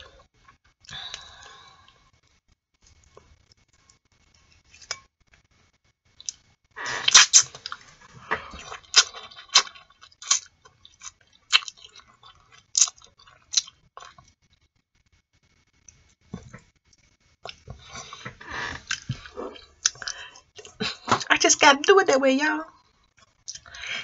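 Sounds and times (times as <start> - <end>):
mouth sounds of eating: 6.2 - 14.3, 17.4 - 21.3.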